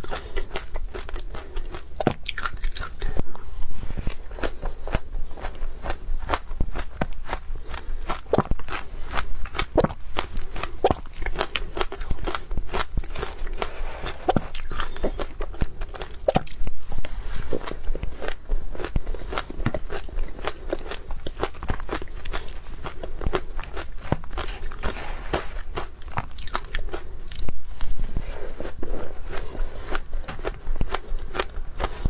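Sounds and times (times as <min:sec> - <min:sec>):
crunching and chewing ice: 0:00.0 - 0:03.4, 0:04.0 - 0:32.0.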